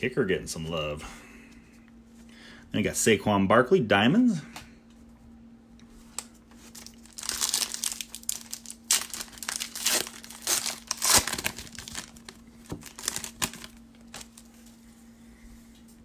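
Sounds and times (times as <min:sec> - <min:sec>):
foil wrapper crinkling and tearing: 0:06.2 - 0:14.6.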